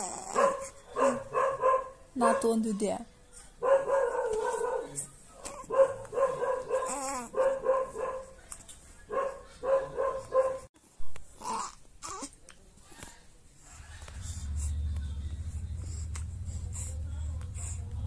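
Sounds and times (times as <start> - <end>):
baby cooing: 0.0 - 0.4, 6.8 - 7.4, 11.4 - 12.4.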